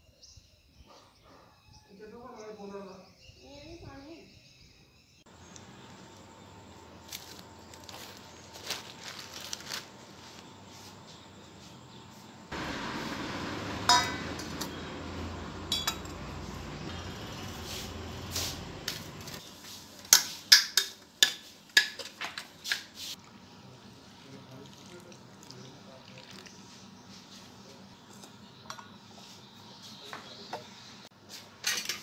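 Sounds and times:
utensils clinking on counter: 13.9s - 14.8s, 15.6s - 16.4s, 31.6s - 32.0s.

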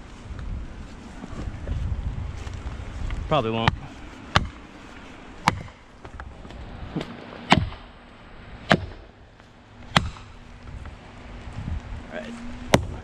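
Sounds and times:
hammer striking felling wedge: 3.6s - 4.6s, 5.4s - 6.2s, 6.9s - 7.9s, 8.6s - 9.2s, 9.8s - 10.4s, 12.7s - 13.0s.

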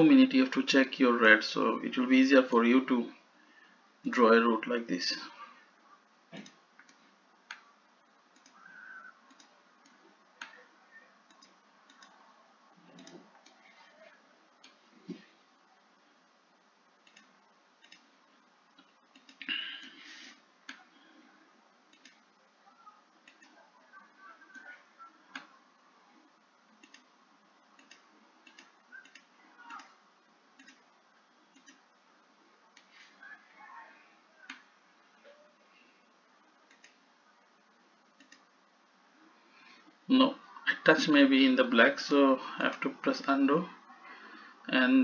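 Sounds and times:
computer mouse clicks: 6.3s - 7.7s, 8.3s - 10.6s, 11.3s - 12.2s, 12.9s - 13.6s, 17.0s - 18.1s, 18.7s - 19.5s, 21.9s - 22.2s, 23.2s - 23.6s, 26.7s - 27.1s, 27.7s - 29.9s, 30.6s - 30.8s, 31.5s - 31.8s, 36.6s - 37.0s, 38.1s - 38.5s.

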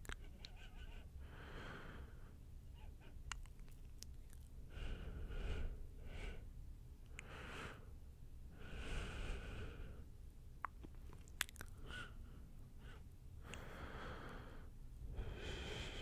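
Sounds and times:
light mouth clicks: 0.0s - 0.6s, 3.2s - 4.5s, 10.6s - 11.9s.

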